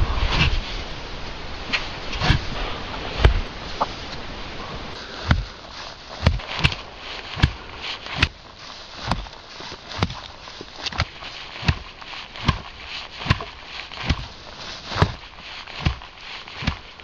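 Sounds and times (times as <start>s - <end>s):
steady rustling hiss: 0.0s - 17.0s
dull thuds: 1.6s - 17.0s.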